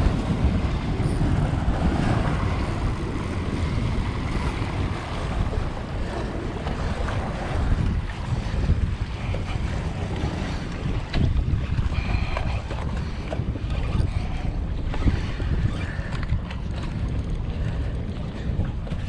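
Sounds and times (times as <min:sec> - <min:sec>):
surf washing against rocks: 0:00.0 - 0:13.5
wind buffeting microphone: 0:00.0 - 0:19.0.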